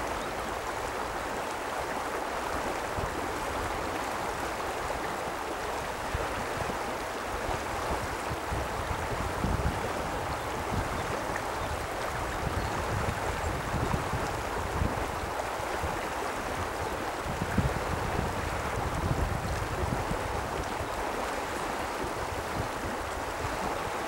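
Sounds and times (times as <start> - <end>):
river water rushing: 0.0 - 24.0.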